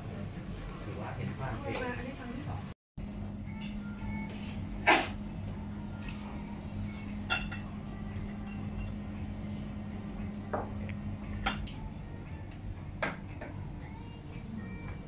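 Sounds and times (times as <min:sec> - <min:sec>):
small fan motor humming: 0:00.1 - 0:15.0
glass clinks: 0:07.3 - 0:07.7, 0:11.3 - 0:11.7.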